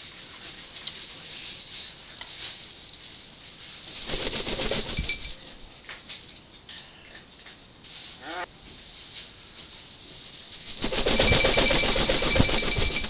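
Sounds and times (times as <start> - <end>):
parrot rattling steel food bowl: 4.1 - 5.4, 10.7 - 13.0.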